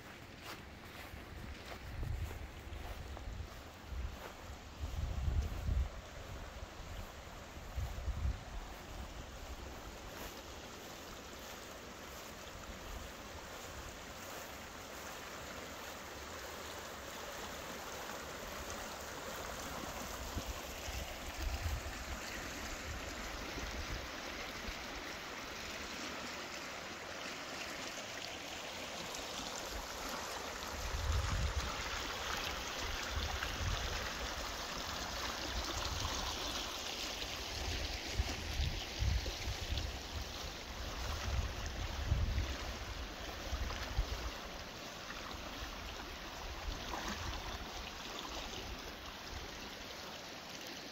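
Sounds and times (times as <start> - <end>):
wind buffeting microphone: 1.6 - 6.5, 30.8 - 31.8
river water rushing: 5.9 - 50.9.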